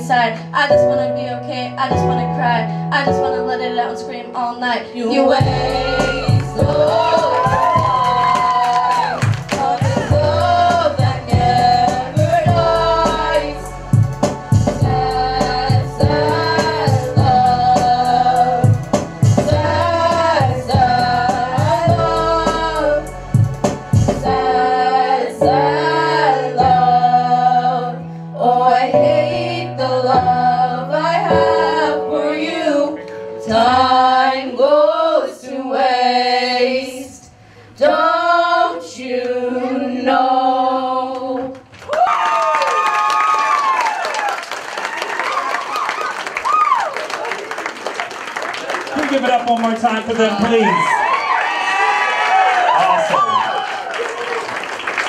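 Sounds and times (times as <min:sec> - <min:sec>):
woman singing: 0:00.0 - 0:13.7, 0:14.8 - 0:18.8, 0:19.4 - 0:23.2, 0:24.2 - 0:41.6
drum and bass beat: 0:05.4 - 0:24.5.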